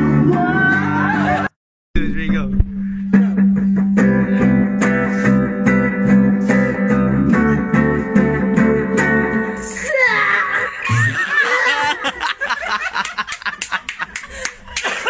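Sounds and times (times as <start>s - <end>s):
held low note: 2.0s - 3.9s
acoustic guitar strumming: 2.0s - 9.8s.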